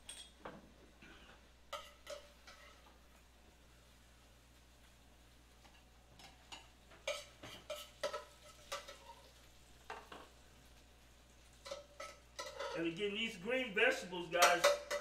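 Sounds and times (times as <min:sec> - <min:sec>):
metal tongs clinking on pan: 0:01.7 - 0:02.8, 0:05.6 - 0:09.3, 0:11.6 - 0:13.0, 0:14.3 - 0:15.0.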